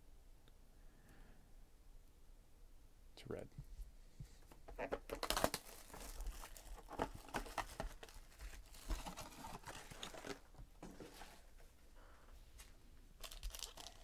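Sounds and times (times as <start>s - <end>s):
plastic wrap crinkling and tearing: 4.8s - 10.6s, 13.2s - 14.0s.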